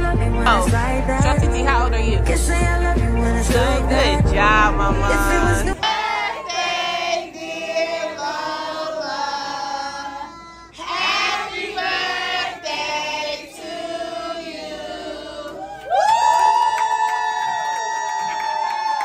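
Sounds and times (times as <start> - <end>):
group of people singing: 2.3 - 15.8.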